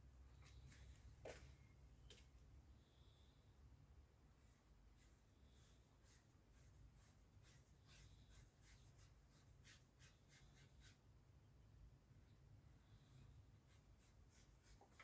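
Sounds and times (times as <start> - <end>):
paintbrush strokes on paper: 4.4 - 11.1, 12.8 - 15.0.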